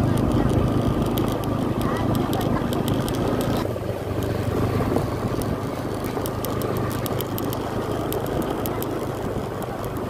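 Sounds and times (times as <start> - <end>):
road and wind noise: 0.0 - 10.0
vehicle engine running: 0.0 - 10.0
faint clicks: 5.3 - 10.0.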